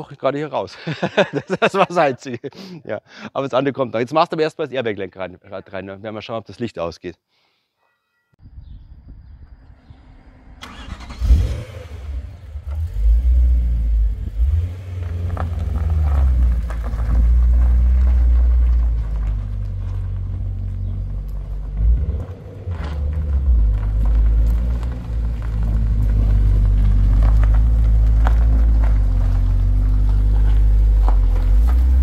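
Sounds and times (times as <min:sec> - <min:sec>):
car engine starting and revving: 0:09.6 - 0:32.0.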